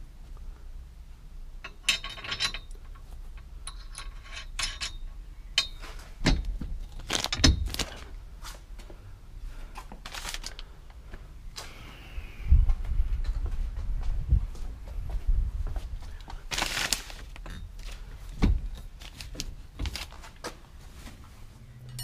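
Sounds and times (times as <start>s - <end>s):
bolts and tools clinking: 1.6s - 8.2s, 16.6s - 20.4s.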